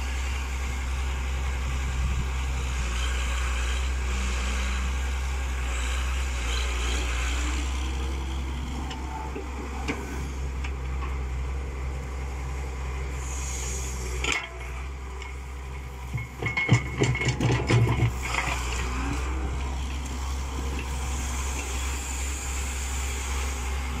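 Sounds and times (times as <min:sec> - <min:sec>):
excavator diesel engine running: 0:00.0 - 0:24.0
metallic clanks and knocks: 0:16.1 - 0:18.6.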